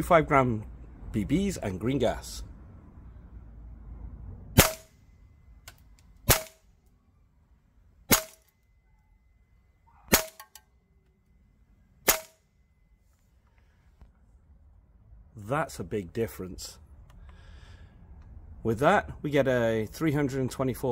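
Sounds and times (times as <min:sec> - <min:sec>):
airsoft rifle shots: 0:04.6 - 0:05.0, 0:06.2 - 0:06.6, 0:08.1 - 0:08.5, 0:10.1 - 0:10.6, 0:12.0 - 0:12.4.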